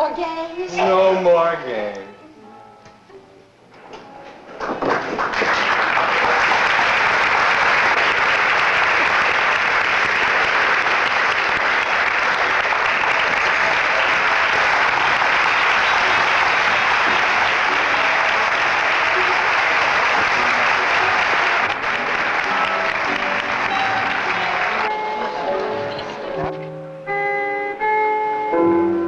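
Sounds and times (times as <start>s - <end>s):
audience applauding: 4.6s - 26.5s.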